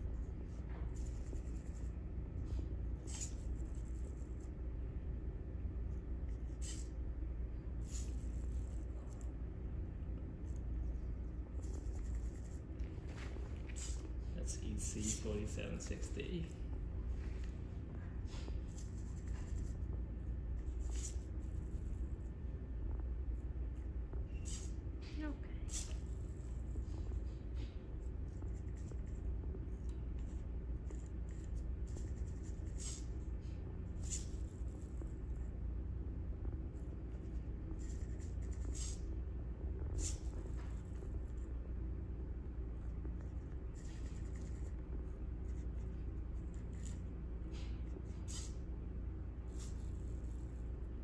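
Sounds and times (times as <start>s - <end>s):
steady low hum: 0.0s - 51.0s
marker scraping on whiteboard: 0.2s - 4.5s, 6.2s - 7.0s, 7.8s - 9.2s, 10.4s - 16.2s, 18.3s - 20.0s, 20.6s - 22.1s, 24.3s - 29.2s, 29.8s - 35.1s, 37.2s - 39.1s, 39.9s - 41.5s, 43.2s - 48.6s.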